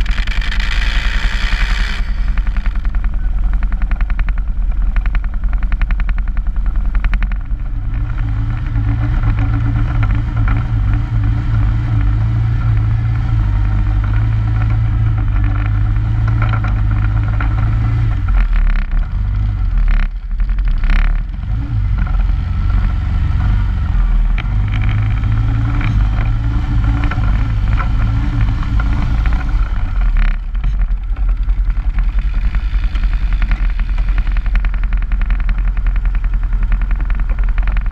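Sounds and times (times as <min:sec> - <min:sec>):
fast ticking: 0:00.0 - 0:11.3, 0:24.3 - 0:37.9
quad bike engine rumbling: 0:00.0 - 0:37.9.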